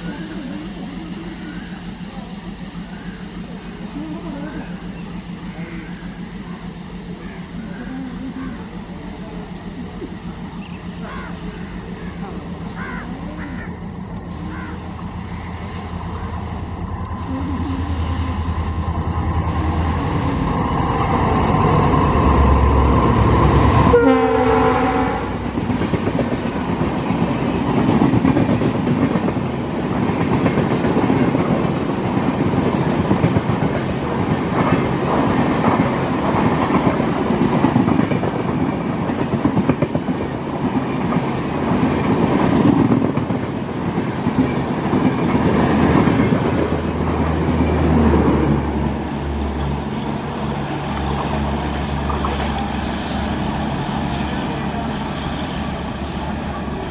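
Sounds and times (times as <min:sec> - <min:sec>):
train approaching: 0:00.0 - 0:56.9
train horn blast: 0:23.6 - 0:25.6.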